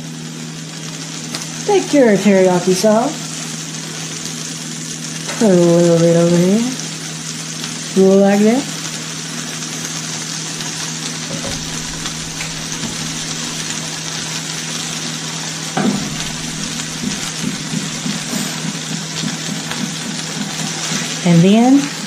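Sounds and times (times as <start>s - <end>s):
food sizzling in a frying pan: 0.0s - 22.0s
low hum: 11.2s - 14.0s, 15.8s - 21.2s
knock: 11.3s - 13.5s, 15.8s - 20.1s.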